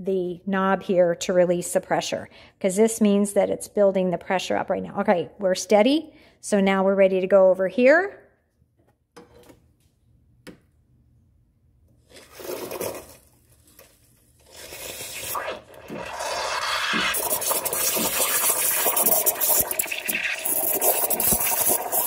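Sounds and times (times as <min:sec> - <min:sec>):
milk gurgling: 0:14.4 - 0:22.0.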